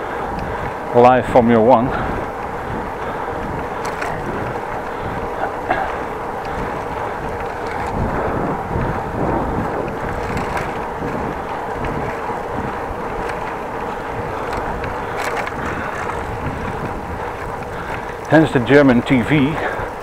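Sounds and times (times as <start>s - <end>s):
bicycle rolling on path: 0.0s - 20.0s
wind buffeting microphone: 0.0s - 20.0s.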